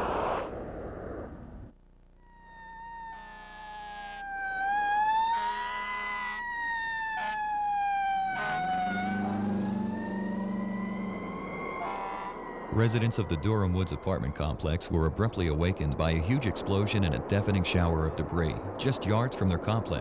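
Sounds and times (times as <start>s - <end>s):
fire engine siren wailing: 2.2s - 14.4s
air horn blasts: 2.3s - 12.4s
truck engine passing: 4.3s - 14.0s.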